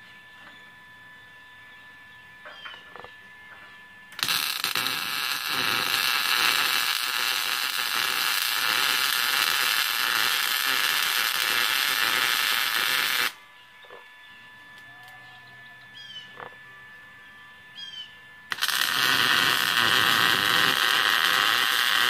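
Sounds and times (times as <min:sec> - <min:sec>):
welding arc crackling and hissing: 0:04.1 - 0:13.4, 0:18.5 - 0:22.0.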